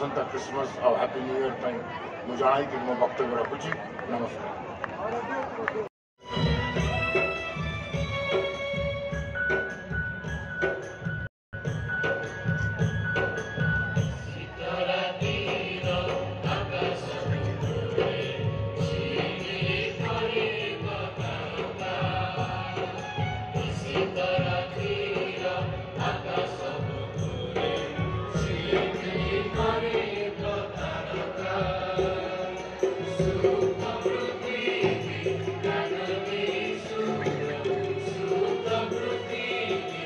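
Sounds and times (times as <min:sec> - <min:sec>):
keyboard: 0:06.2 - 0:40.0
choir singing a carol: 0:14.2 - 0:40.0.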